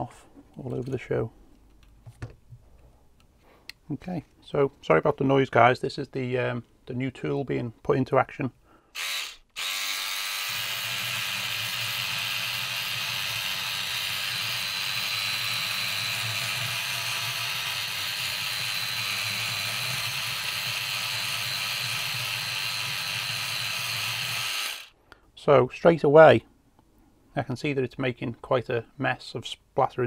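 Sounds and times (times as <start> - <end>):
cleaning brush whirring: 9.0 - 24.9.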